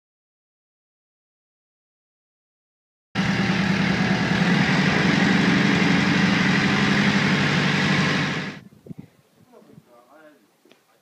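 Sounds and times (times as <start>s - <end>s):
boat engine running: 3.2s - 8.6s.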